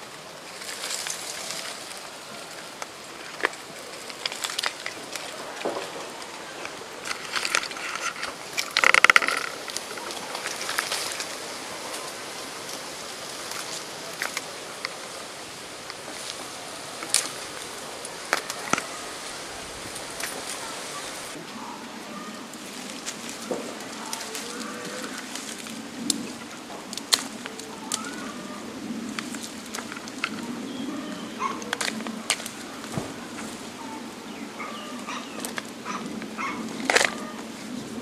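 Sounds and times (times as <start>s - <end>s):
leaves and twigs rustling: 0.0s - 38.0s
sharp cracks: 0.5s - 19.2s.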